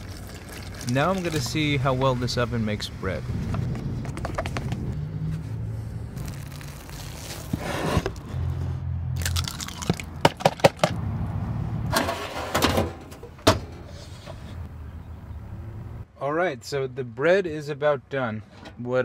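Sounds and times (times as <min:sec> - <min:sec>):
egg cracking: 0:09.2 - 0:10.9.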